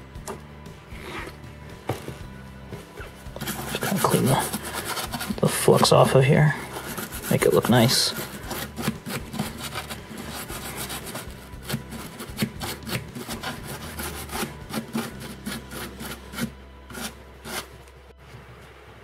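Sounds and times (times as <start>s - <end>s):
brush bristles scrubbing circuit board: 3.3s - 17.7s.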